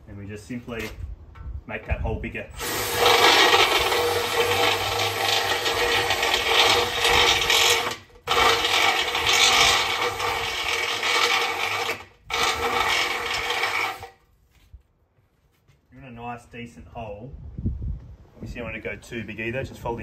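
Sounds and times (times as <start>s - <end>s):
cordless drill boring through metal: 2.6s - 14.2s.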